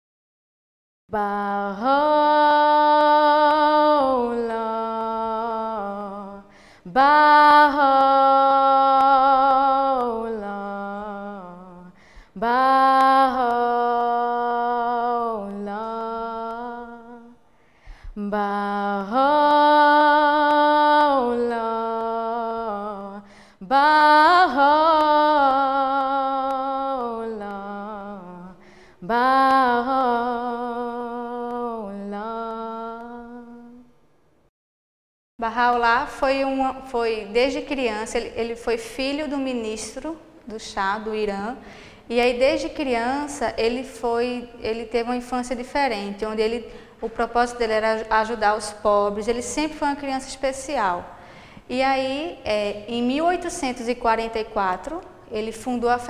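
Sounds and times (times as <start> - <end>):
person singing unaccompanied: 1.2 - 17.4, 18.2 - 33.9
singer breathing: 6.5 - 6.9, 12.0 - 12.4, 17.5 - 18.2, 23.2 - 23.6, 28.6 - 29.0, 41.6 - 42.1, 46.7 - 47.0, 51.1 - 51.7.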